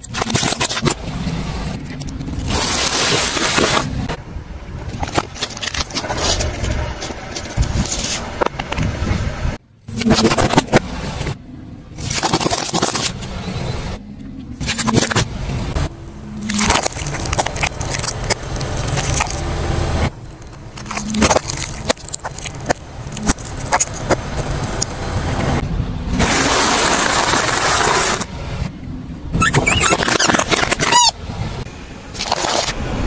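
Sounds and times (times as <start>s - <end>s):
plastic containers cracking under tyre: 16.4s - 19.5s, 20.1s - 24.9s
rubber ball squealing under tyre: 29.3s - 31.2s.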